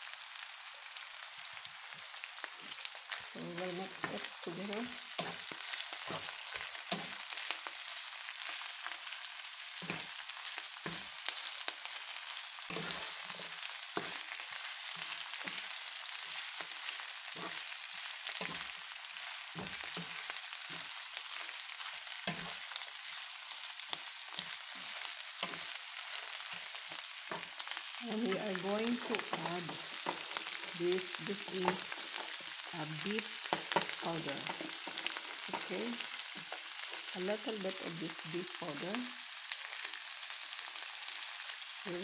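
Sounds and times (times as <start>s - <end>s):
food sizzling in a frying pan: 0.0s - 42.0s
spatula knocking and scraping pan: 5.2s - 7.3s, 12.7s - 15.7s, 19.4s - 20.9s, 22.3s - 22.6s, 28.2s - 32.6s, 33.4s - 35.7s.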